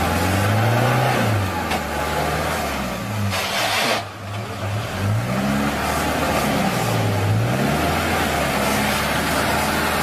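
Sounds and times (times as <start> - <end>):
off-road engine revving: 0.0 - 10.0
tyres hissing in mud: 3.3 - 4.1.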